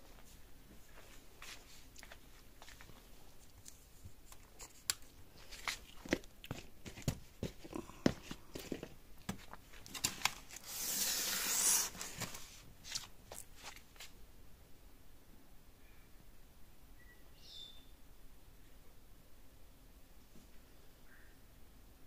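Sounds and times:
cardboard tearing: 9.8 - 13.1.

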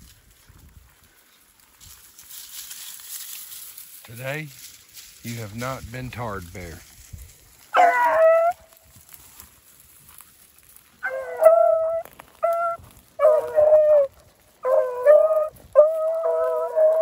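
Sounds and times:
hounds baying: 7.7 - 8.7, 11.0 - 17.0.

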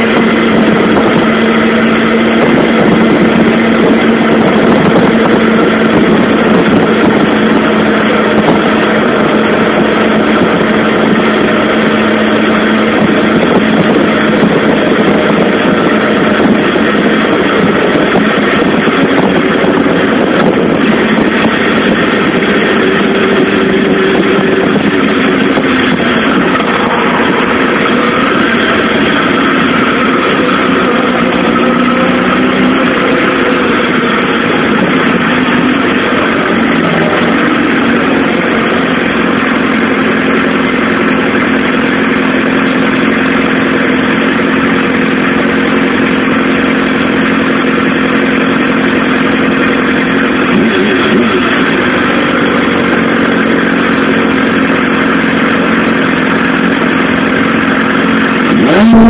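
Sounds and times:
motorcycle engine running: 0.0 - 59.0.

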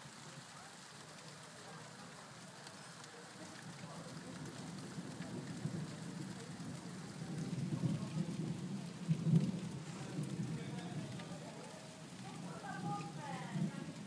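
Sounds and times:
steady rain: 0.0 - 14.0
thunder rumbling: 3.4 - 14.0.

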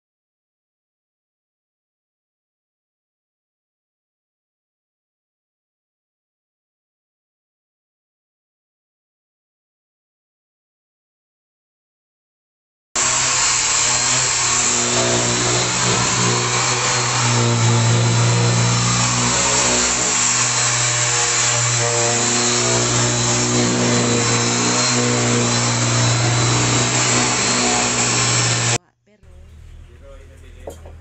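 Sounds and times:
power sander on wood: 13.0 - 28.8.

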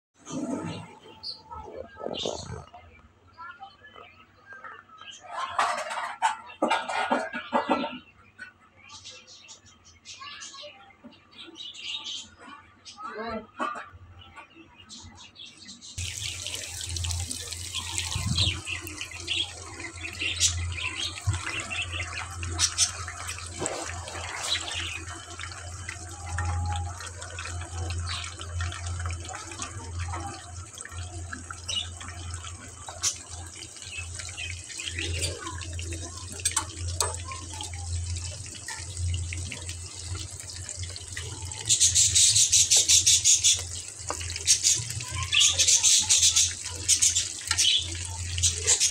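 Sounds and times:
fish deep-frying in oil: 16.0 - 48.9
oil crackles and pops: 16.0 - 48.9.

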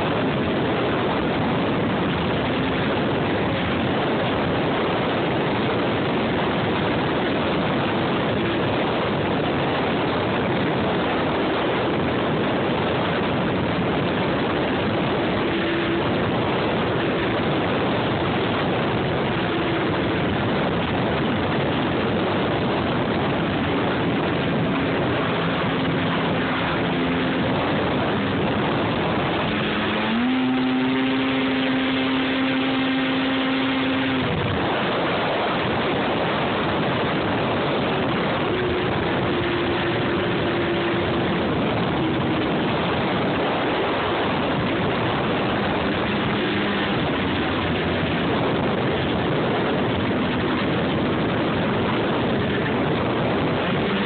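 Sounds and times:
snowmobile engine rushing: 0.0 - 54.0
wind on microphone: 0.0 - 54.0.

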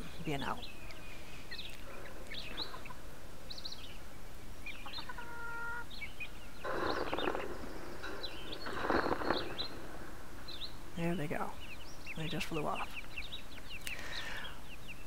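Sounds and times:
young chickens peeping: 0.0 - 15.0
wing flapping: 6.6 - 11.1.

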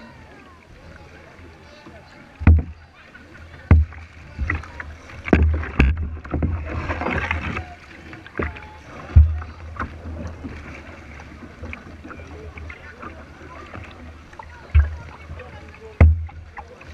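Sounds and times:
water splashing from paddle strokes: 0.0 - 16.9
thuds on plastic kayak hull: 2.4 - 2.8, 3.6 - 7.6, 8.4 - 10.0, 14.7 - 15.2, 16.0 - 16.8.

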